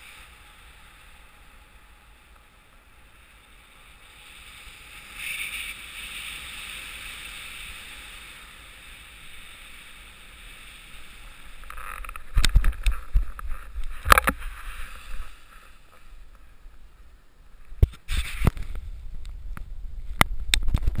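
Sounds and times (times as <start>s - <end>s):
air rushing over helmet camera: 4.0s - 16.7s, 17.8s - 21.0s.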